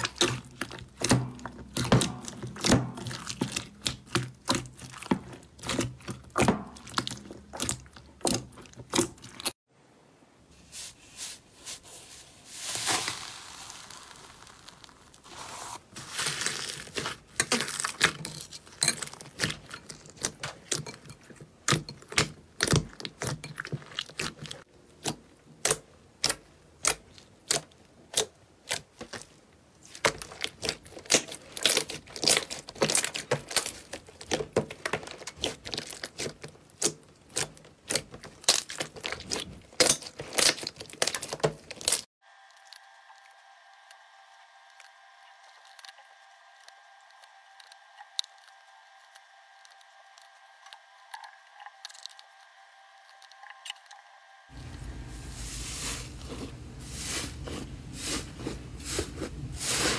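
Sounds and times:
slime popping and crackling: 0:12.6 - 0:15.5, 0:21.7 - 0:42.8.

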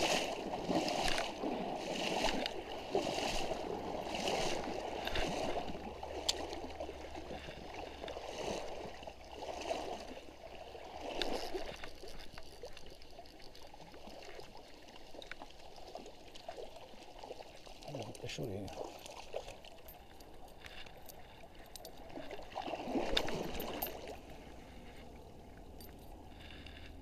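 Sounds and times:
stream water gurgling: 0:00.0 - 0:27.0.

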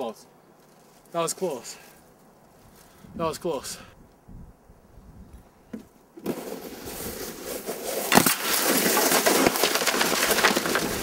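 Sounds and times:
toboggan scraping on icy snow: 0:06.2 - 0:11.0
wooden frames cracking: 0:08.1 - 0:11.0.

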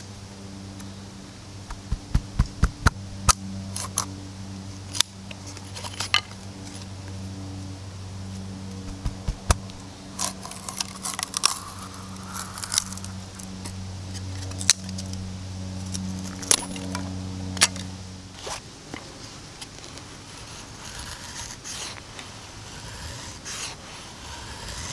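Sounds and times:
steady low hum: 0:00.0 - 0:18.7
knife shaving wood: 0:08.8 - 0:14.6, 0:19.7 - 0:24.9.

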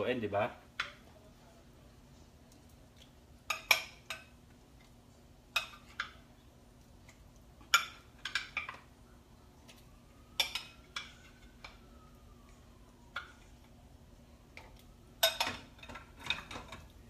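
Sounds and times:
metal cookware clinking: 0:03.5 - 0:04.4, 0:05.5 - 0:06.2, 0:07.6 - 0:08.9, 0:10.4 - 0:11.8, 0:15.2 - 0:17.0.

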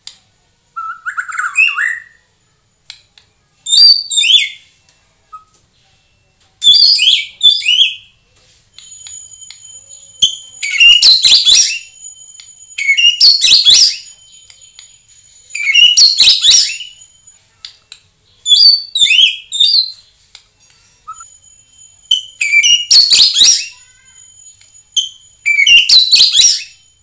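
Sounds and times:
high-pitched whistle tone: 0:03.7 - 0:27.0
bird singing varied phrases: 0:09.0 - 0:17.4, 0:18.4 - 0:20.0, 0:20.8 - 0:26.9.

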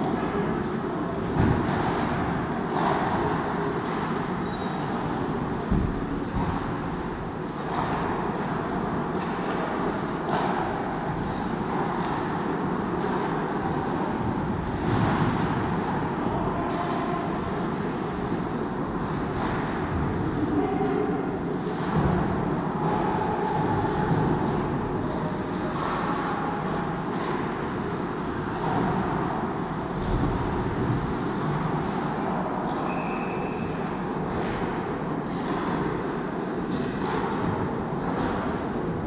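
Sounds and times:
faint constant hum: 0:00.0 - 0:39.0.

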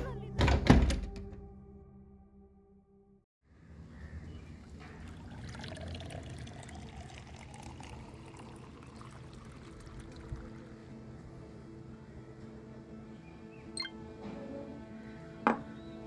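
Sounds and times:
water pouring into a glass: 0:05.0 - 0:10.9.

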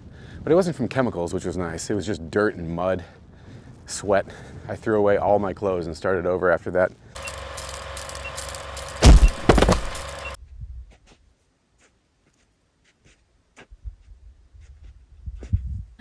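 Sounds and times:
steady mechanical hum: 0:07.2 - 0:10.4
heavy thumps: 0:09.0 - 0:10.3.

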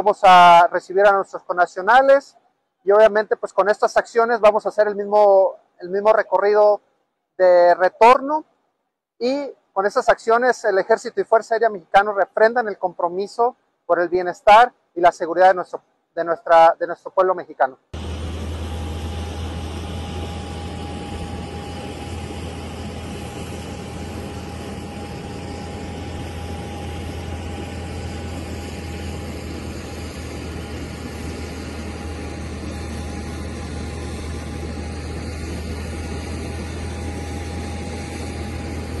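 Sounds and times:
jet aircraft low hum: 0:18.0 - 0:39.0
steady engine whine: 0:18.0 - 0:39.0.

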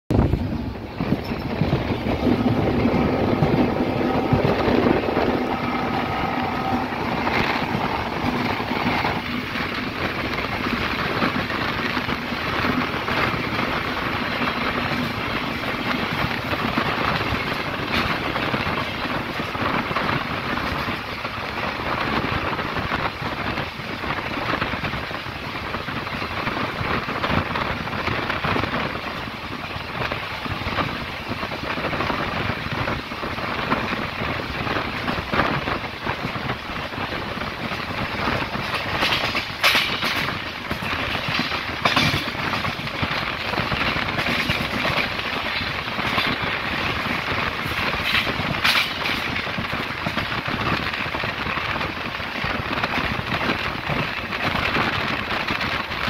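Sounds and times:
rushing air: 0:00.1 - 0:20.4
train wheels on rails: 0:00.1 - 0:56.0.

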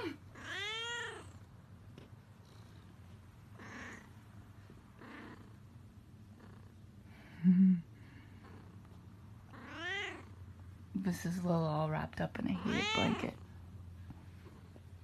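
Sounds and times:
cat meowing: 0:00.4 - 0:01.3, 0:09.5 - 0:10.3, 0:12.6 - 0:13.4.

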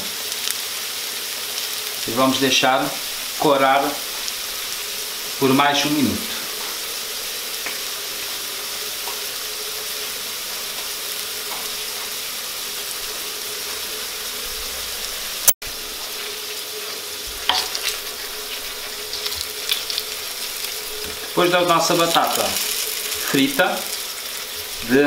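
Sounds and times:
potatoes sizzling in oil: 0:00.0 - 0:25.0
metal utensils clinking in pan: 0:17.5 - 0:18.0.

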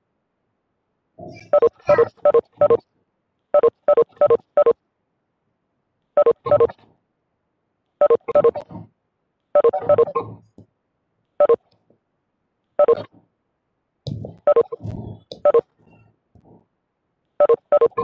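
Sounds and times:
short electronic beeps: 0:01.5 - 0:02.8, 0:03.6 - 0:04.8, 0:06.2 - 0:06.8, 0:08.0 - 0:08.6, 0:09.6 - 0:10.2, 0:12.8 - 0:13.1, 0:14.5 - 0:14.8, 0:15.4 - 0:15.7, 0:17.4 - 0:18.0.

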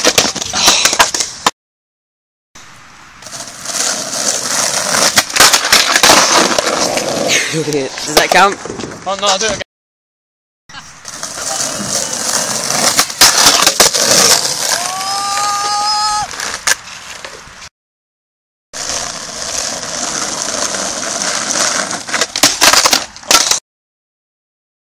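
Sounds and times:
skateboard knocks and clacks: 0:00.0 - 0:01.3, 0:03.7 - 0:07.2, 0:18.9 - 0:23.6
skateboard wheels rolling on tarmac: 0:00.0 - 0:01.5, 0:02.6 - 0:09.6, 0:10.9 - 0:17.7, 0:18.8 - 0:23.6
skateboard grinding metal rail: 0:03.2 - 0:07.4, 0:11.0 - 0:14.8, 0:18.8 - 0:23.6.

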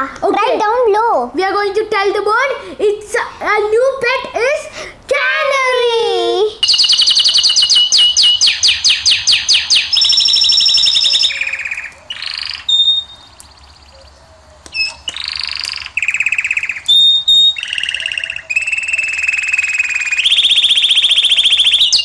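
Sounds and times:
canary singing: 0:06.6 - 0:22.0.

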